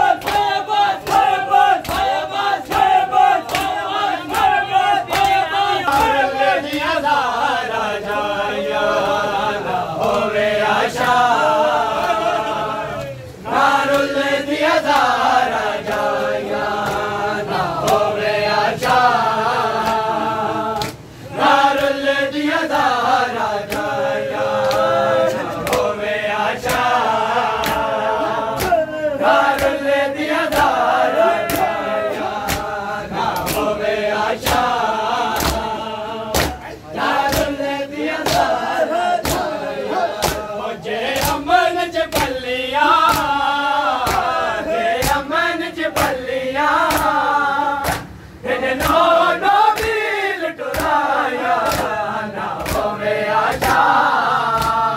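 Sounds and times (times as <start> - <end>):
men chanting in unison: 0.0 - 54.9
hands slapping bare chests: 0.2 - 6.9, 20.8 - 21.0, 28.6 - 28.8, 29.4 - 29.8, 30.5 - 30.8, 31.4 - 31.8, 32.4 - 32.8, 34.4 - 35.7, 36.3 - 36.6, 38.2 - 38.6, 39.2 - 39.6, 40.2 - 40.5, 43.0 - 43.4, 44.0 - 44.4, 45.0 - 45.3, 46.8 - 47.2, 47.8 - 48.1, 50.7 - 51.0, 51.6 - 52.0, 52.6 - 53.9, 54.5 - 54.8.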